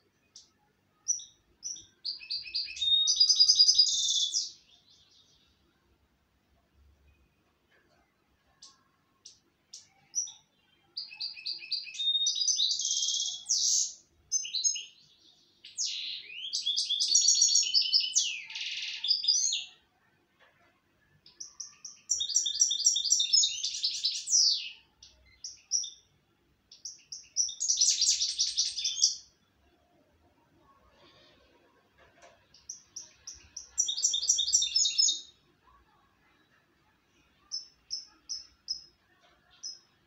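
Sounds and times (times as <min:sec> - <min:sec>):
goldfinch singing: 0:26.7 - 0:29.3, 0:32.6 - 0:35.3, 0:37.4 - 0:38.9.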